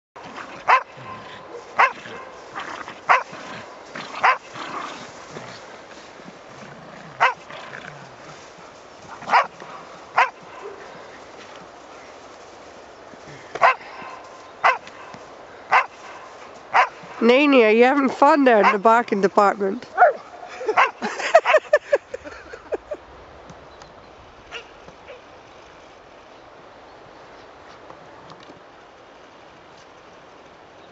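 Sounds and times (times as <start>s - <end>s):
dog barking: 0.7s - 2.4s, 3.1s - 3.3s, 4.2s - 4.5s, 7.2s - 7.4s, 9.3s - 9.5s, 10.2s - 10.8s, 13.6s - 15.1s, 15.7s - 17.0s, 20.0s - 20.2s, 20.8s - 21.0s.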